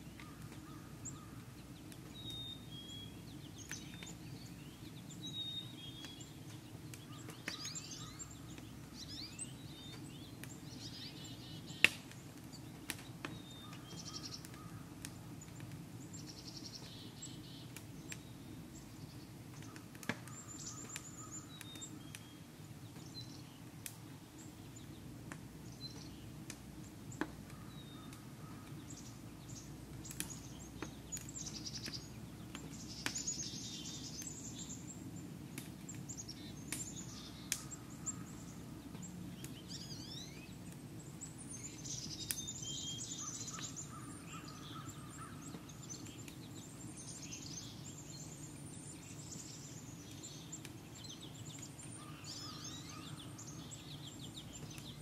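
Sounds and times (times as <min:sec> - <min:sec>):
songbirds chirping and trilling: 0:00.0 - 0:55.0
sharp cracks: 0:11.8 - 0:15.8.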